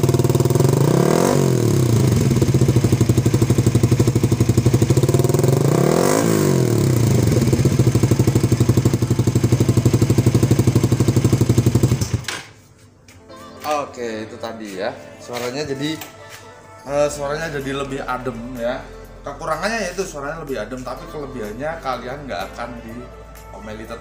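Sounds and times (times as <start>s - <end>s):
motorcycle engine idling and revving: 0.0s - 12.3s.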